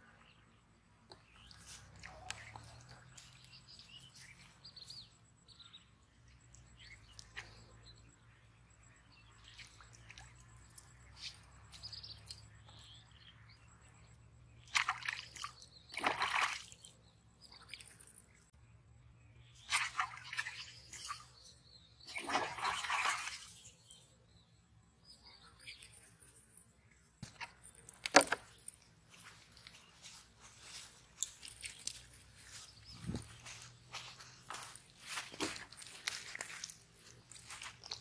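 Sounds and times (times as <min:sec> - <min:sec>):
small birds chirping: 0:00.0 - 0:38.0
fish splashing and thrashing: 0:14.6 - 0:17.0, 0:19.6 - 0:23.8, 0:25.6 - 0:38.0.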